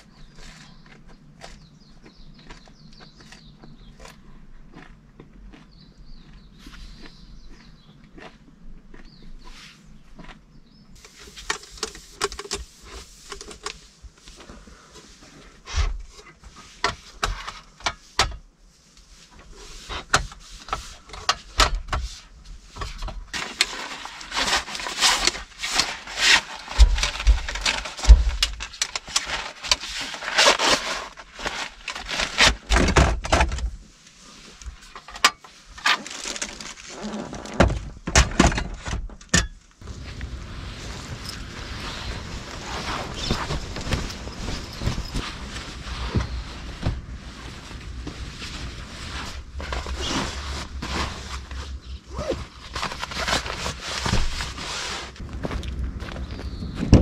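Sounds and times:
fabric bag rustling: 0:40.3 - 0:55.2
knocks and thunks: 0:56.8 - 0:57.0.

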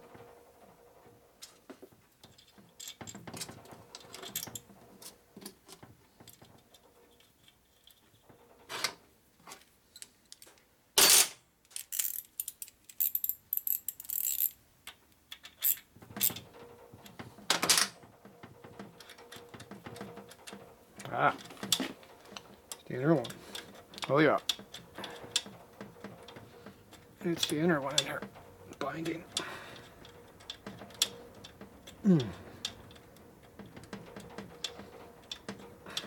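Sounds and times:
metal tools clinking on workbench: 0:10.0 - 0:14.6.

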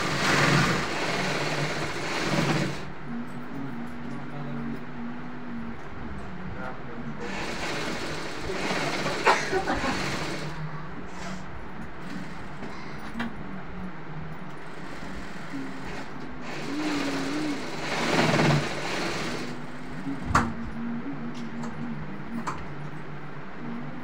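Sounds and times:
industrial sewing machine running: 0:00.0 - 0:03.0, 0:07.2 - 0:10.7, 0:12.0 - 0:12.7, 0:14.6 - 0:20.4
workshop noise: 0:00.0 - 0:13.7.

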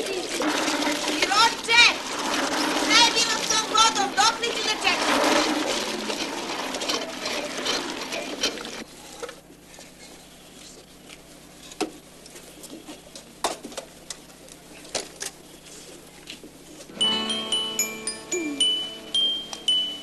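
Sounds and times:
water gushing from tap into bucket: 0:00.0 - 0:08.9.

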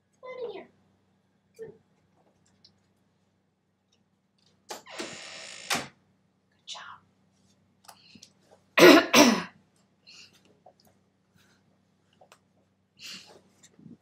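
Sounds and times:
person coughing: 0:08.8 - 0:09.6.

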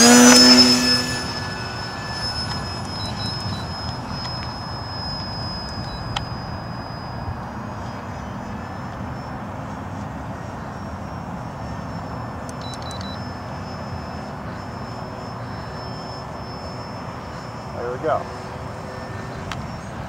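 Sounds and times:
wind noise on microphone: 0:00.0 - 0:09.9
model plane motor whine: 0:00.0 - 0:20.0.

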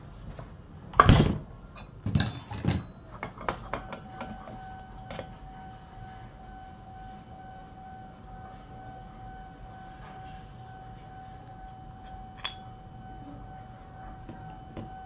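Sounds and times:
metal tools clinking: 0:01.0 - 0:05.4.

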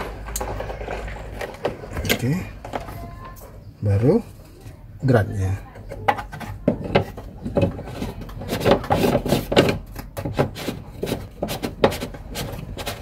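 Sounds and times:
plastic scraping: 0:00.0 - 0:03.5, 0:05.7 - 0:13.0
plastic clicks and knocks: 0:05.8 - 0:12.1.

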